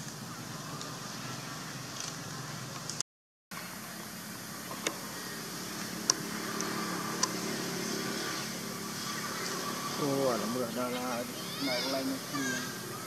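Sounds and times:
steady low hum: 3.6 - 13.0.

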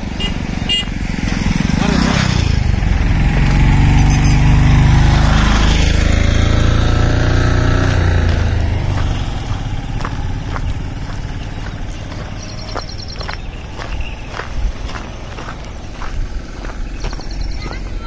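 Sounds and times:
motorcycle passing by: 0.0 - 18.0
goat hooves clicking on asphalt: 7.8 - 18.0.

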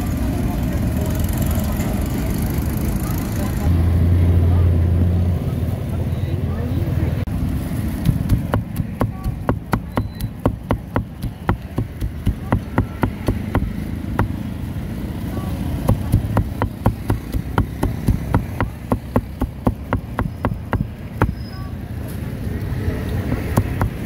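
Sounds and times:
cleaver chopping on block: 8.0 - 14.4, 15.9 - 21.4, 23.4 - 24.0.

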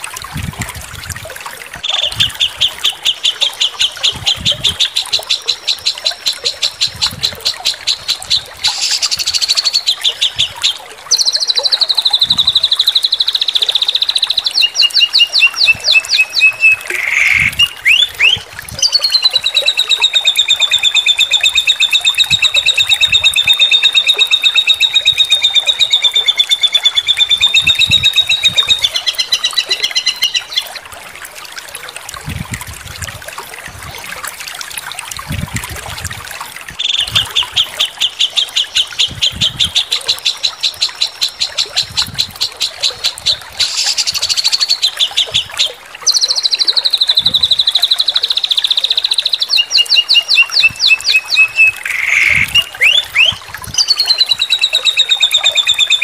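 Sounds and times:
songbird singing: 1.8 - 30.9, 36.8 - 56.0
fast bird trill: 14.1 - 30.6, 49.5 - 56.0.

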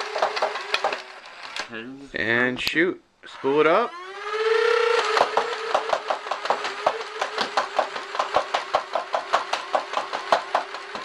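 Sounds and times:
flywheel motor whine: 0.0 - 1.7, 3.4 - 11.0
toy blaster firing clacks: 0.0 - 1.7, 4.1 - 11.0.

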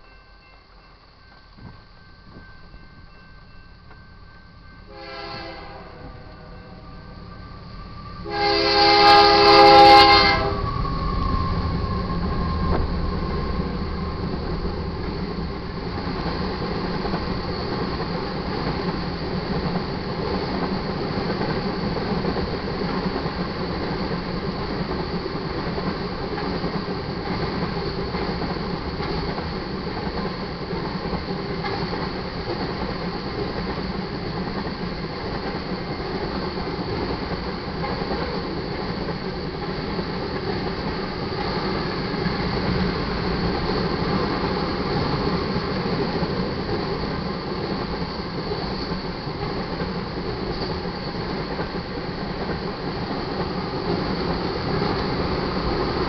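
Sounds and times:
train wheels rumbling on rail: 0.0 - 56.0
locomotive air horn: 4.9 - 6.8, 8.2 - 10.6.

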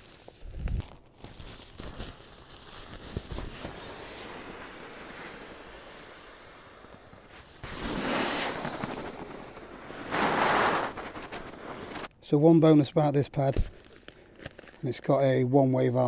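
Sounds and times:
steady air hiss: 3.2 - 12.1
nylon sack rustling: 7.3 - 12.1.

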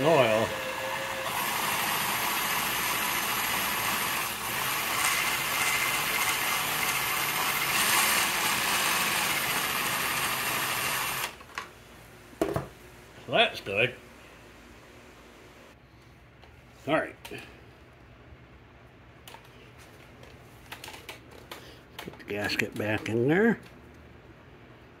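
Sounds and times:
cordless drill running: 0.0 - 11.4.

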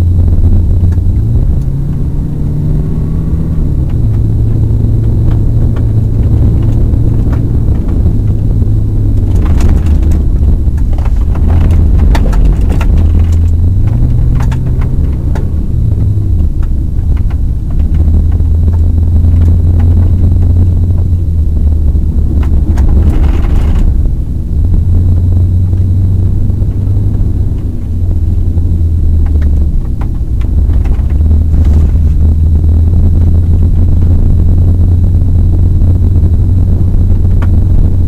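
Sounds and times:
car engine and tyre rumble: 0.0 - 38.0
clicks and knocks: 9.1 - 20.5.

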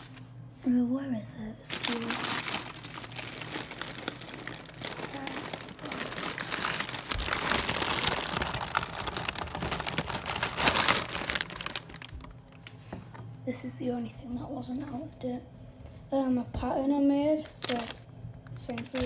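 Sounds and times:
plastic bags crinkling: 0.0 - 0.3, 1.7 - 13.0, 17.4 - 18.0, 18.6 - 19.0.

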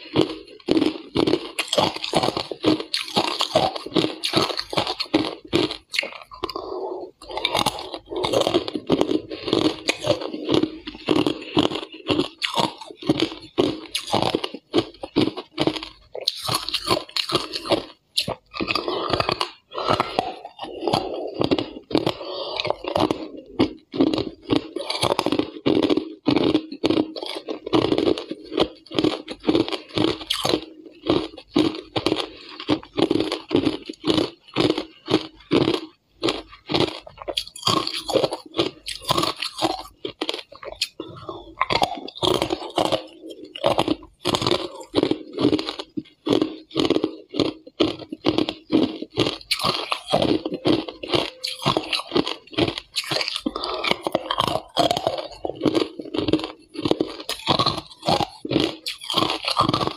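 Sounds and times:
ice cubes crunching between teeth: 0.0 - 59.9.

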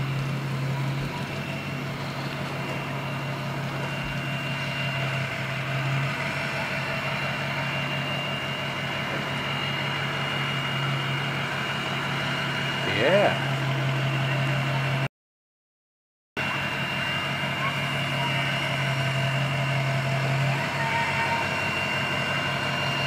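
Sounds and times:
truck engine idling: 0.0 - 15.1, 16.4 - 23.0.

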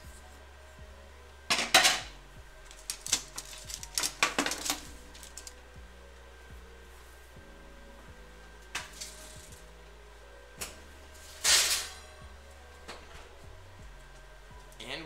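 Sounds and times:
metal baking trays clattering: 1.5 - 2.1, 11.4 - 12.0
wire rack clinking and rattling: 1.5 - 2.1, 2.7 - 5.6, 11.3 - 12.0.

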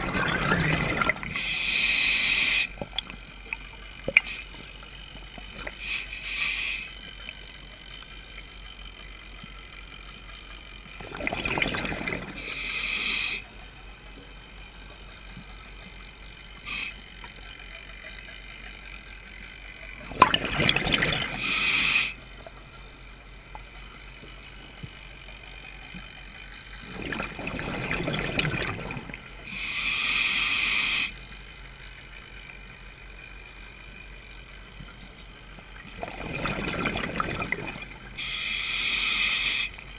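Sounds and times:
exhaled bubbles rushing: 0.0 - 1.4, 11.0 - 12.4, 20.0 - 21.4, 26.8 - 29.3, 35.8 - 38.2
low underwater background: 0.0 - 39.9
regulator hissing: 1.2 - 2.8, 5.7 - 7.2, 12.4 - 13.4, 16.5 - 17.3, 21.3 - 22.3, 29.4 - 31.2, 38.0 - 39.9.

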